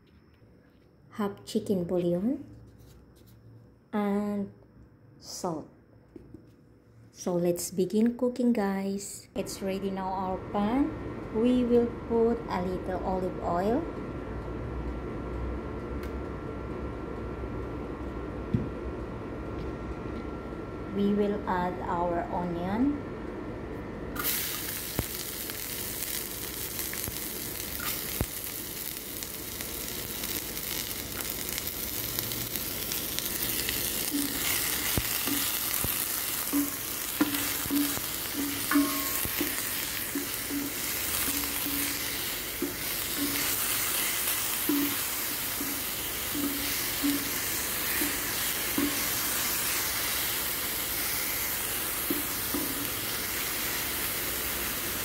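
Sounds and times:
onion sizzling in oil: 0:24.2 - 0:55.0.

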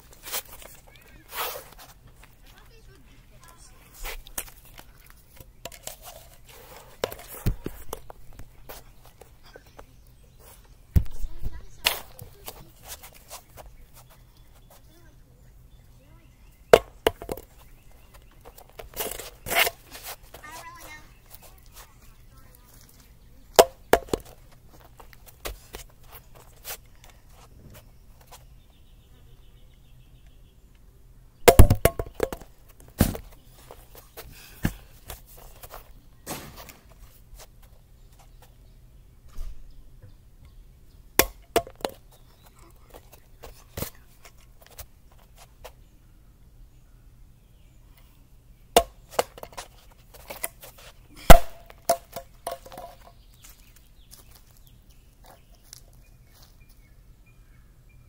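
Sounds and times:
plastic bottle landing on concrete: 0:16.8 - 0:17.5, 0:23.6 - 0:24.4, 0:31.5 - 0:33.3, 0:36.3 - 0:36.9, 0:41.2 - 0:42.0, 0:51.3 - 0:53.1.

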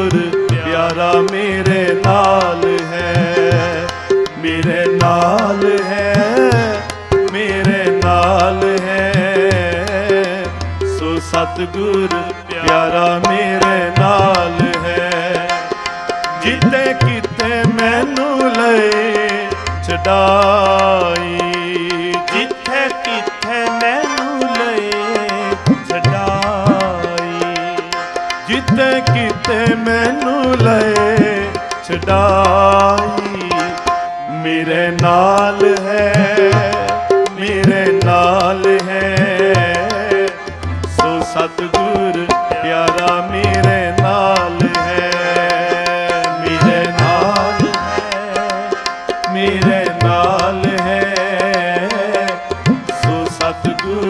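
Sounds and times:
continuous melodic line: 0:00.0 - 0:54.0
harmonium held notes: 0:00.0 - 0:54.0
tabla playing: 0:00.0 - 0:54.0
tabla strokes: 0:35.0 - 0:54.0.

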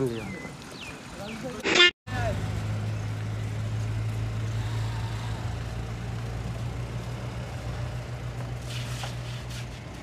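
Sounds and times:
large engine idling: 0:02.1 - 0:10.0.

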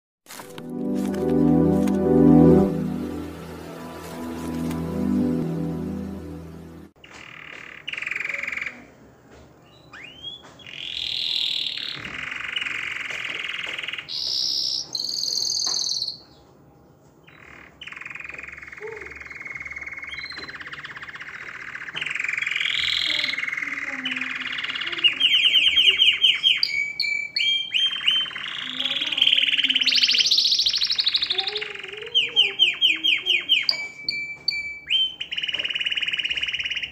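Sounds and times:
canary singing trills: 0:09.6 - 0:16.4, 0:17.2 - 0:36.9.

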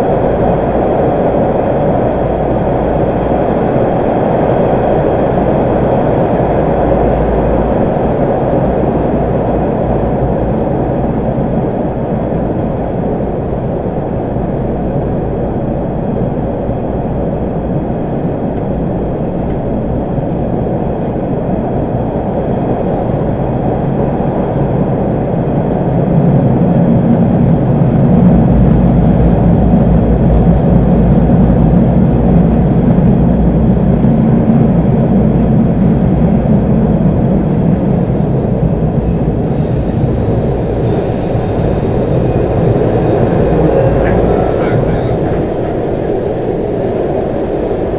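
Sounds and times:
subway car rumbling on rails: 0:00.0 - 0:47.9
deep drone: 0:27.1 - 0:47.9.

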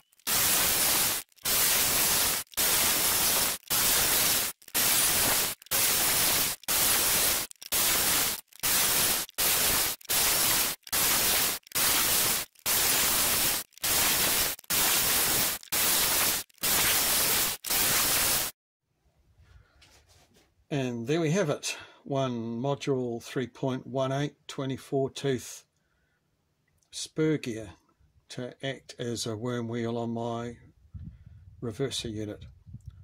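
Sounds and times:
angle grinder cutting metal: 0:00.0 - 0:18.5.

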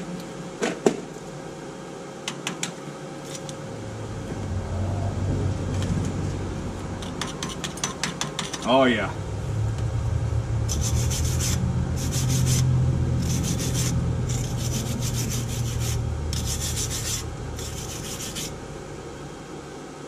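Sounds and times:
wire brush scrubbing metal: 0:10.7 - 0:18.6.

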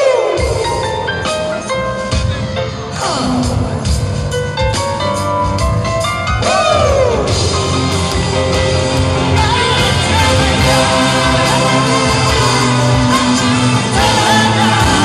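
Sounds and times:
person singing: 0:00.0 - 0:01.2, 0:09.1 - 0:15.0
live rock band playing: 0:00.0 - 0:15.0.

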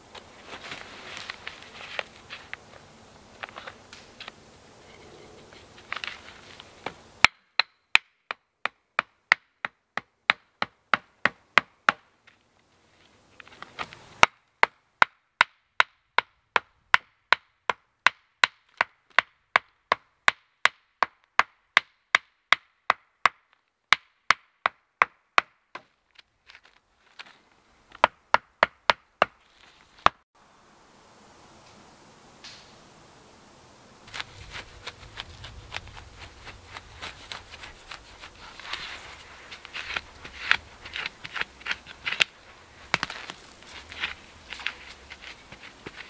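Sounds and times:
wooden club knocking stakes: 0:34.1 - 0:46.0.

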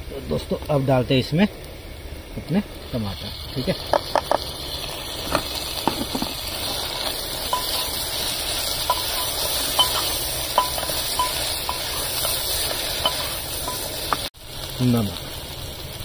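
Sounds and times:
vegetables sizzling in oil: 0:00.0 - 0:16.0
spoon clinking on pan: 0:07.5 - 0:08.0, 0:08.8 - 0:12.4, 0:13.0 - 0:13.9.

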